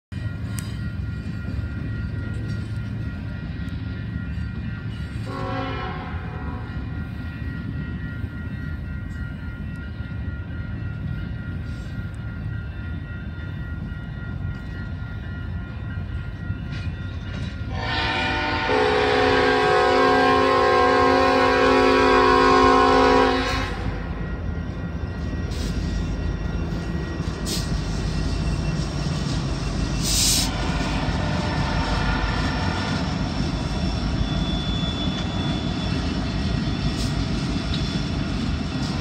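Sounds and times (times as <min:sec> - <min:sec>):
train horn chord: 0:05.2 - 0:06.9, 0:17.7 - 0:24.2.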